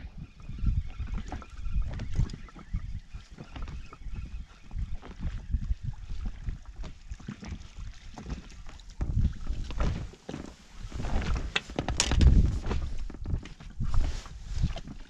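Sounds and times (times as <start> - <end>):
wind buffeting microphone: 0.0 - 10.1, 10.7 - 15.0
waves slapping inflatable boat: 3.2 - 15.0
clicks and rustles of fish handling: 8.2 - 15.0.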